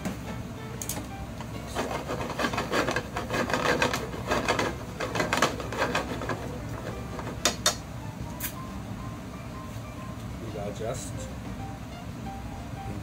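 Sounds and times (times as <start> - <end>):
wooden spatula scraping frying pan: 1.6 - 7.4.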